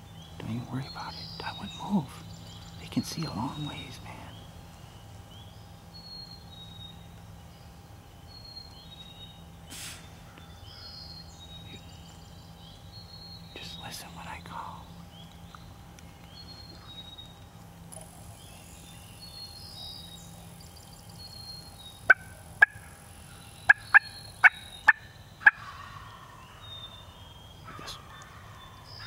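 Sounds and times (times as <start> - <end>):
wild turkey calling: 21.6 - 29.0.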